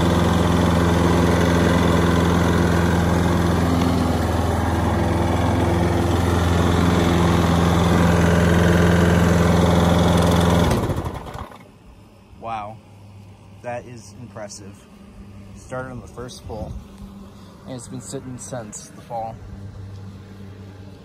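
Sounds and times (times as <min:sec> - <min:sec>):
lawn mower engine running: 0:00.0 - 0:11.8.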